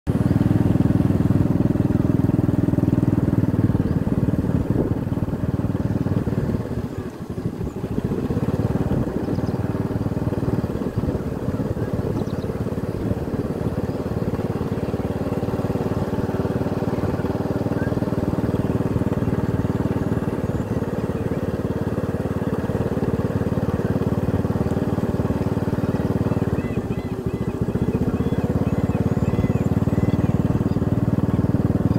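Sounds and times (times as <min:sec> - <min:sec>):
motorcycle engine running: 0:00.1 - 0:31.9.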